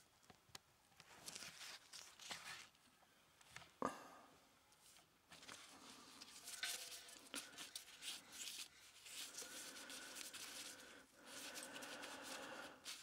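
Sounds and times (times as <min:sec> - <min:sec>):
faint rubbing and scraping: 0:04.8 - 0:13.0.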